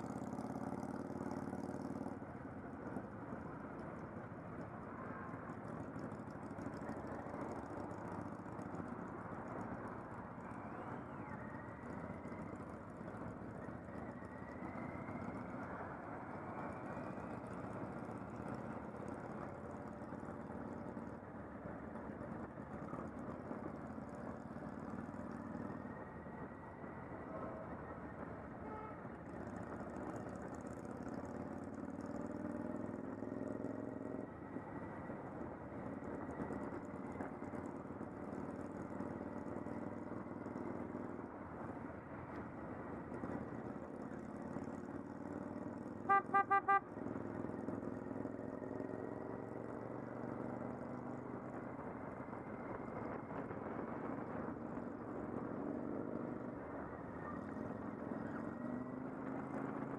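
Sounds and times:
motorcycle engine running: 0.0s - 2.2s, 5.0s - 10.6s, 11.4s - 26.6s, 28.7s - 41.2s, 42.5s - 59.9s
wind and road noise: 0.0s - 59.9s
horn toots: 46.1s - 46.9s.

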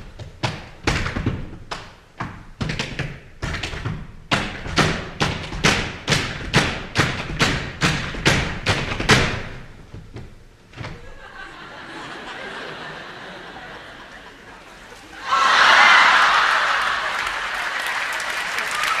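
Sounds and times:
boots stomping on wooden stage: 0.0s - 11.0s.

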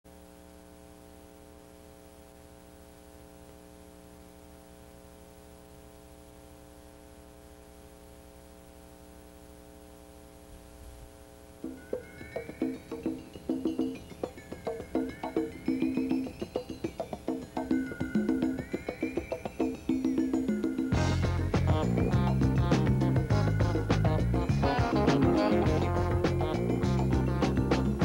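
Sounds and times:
electrical mains hum: 0.1s - 28.0s
faint tape hiss: 0.1s - 28.0s
music with knocking percussion: 11.6s - 28.0s.

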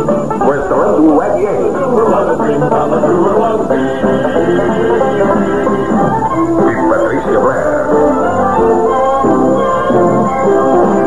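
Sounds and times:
instrumental western theme music: 0.0s - 11.0s
plucked strings: 0.0s - 11.0s.

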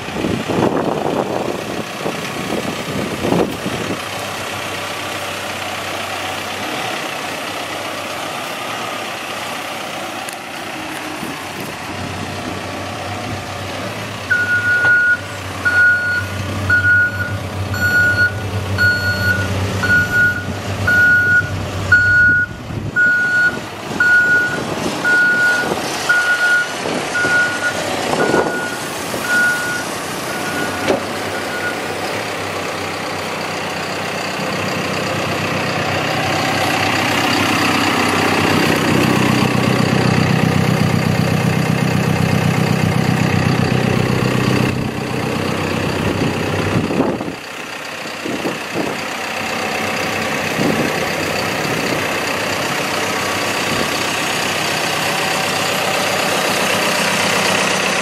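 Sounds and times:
diesel engine running: 0.0s - 58.0s
reversing alarm beeping: 14.3s - 31.9s.

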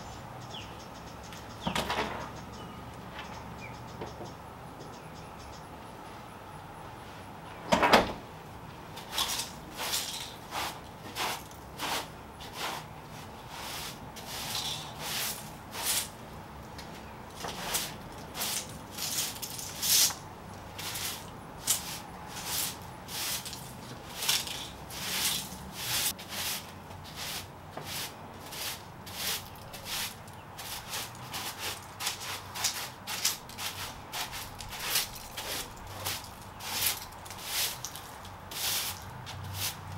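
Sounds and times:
door shutting: 1.6s - 2.3s, 7.7s - 8.2s
broom sweeping brick floor: 8.9s - 16.2s, 17.3s - 39.9s.

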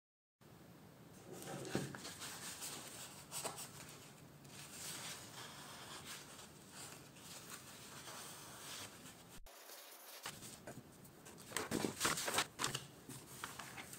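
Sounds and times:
parchment rustling and crackling: 1.3s - 13.9s.

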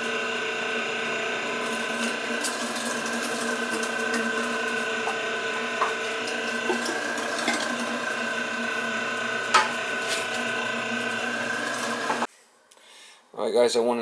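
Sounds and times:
electric meat grinder running: 0.0s - 12.3s.

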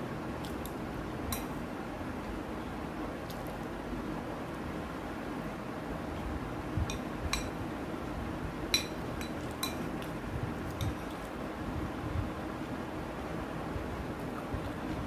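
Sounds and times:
metal spoon clinking on glass plate: 6.9s - 7.6s, 8.7s - 9.8s.

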